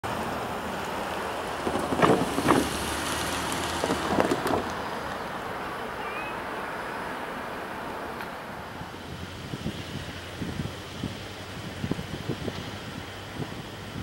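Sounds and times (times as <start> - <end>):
wind on microphone: 1.6 - 2.9, 3.7 - 4.8, 8.7 - 14.0.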